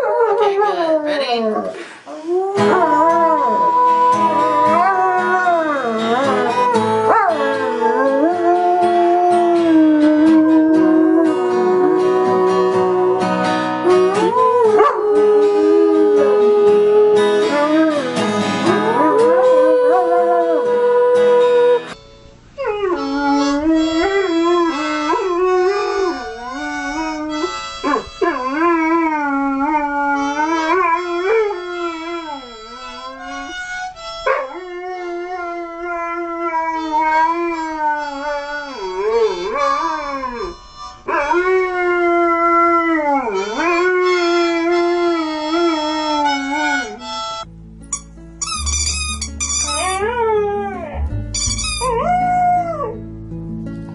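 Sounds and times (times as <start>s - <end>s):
dog howling: 2.3s - 18.1s, 18.8s - 21.9s, 22.6s - 33.6s, 34.2s - 47.1s, 51.8s - 53.0s
harmonica: 2.3s - 19.2s, 20.6s - 50.1s, 51.0s - 52.3s
strummed acoustic guitar: 2.6s - 19.6s, 53.0s - 53.9s.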